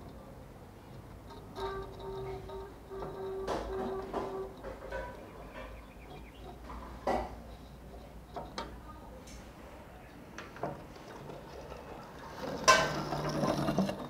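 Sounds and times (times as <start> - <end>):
steel tools clicking on wood: 1.0 - 9.4
metallic knock and scrape: 1.3 - 7.6, 12.4 - 14.0.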